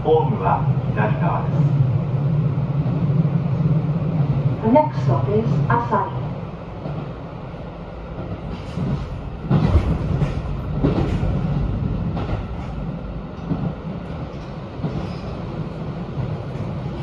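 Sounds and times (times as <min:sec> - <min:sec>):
train wheels rumbling: 0:00.0 - 0:17.0
knocks from the track: 0:08.6 - 0:11.4.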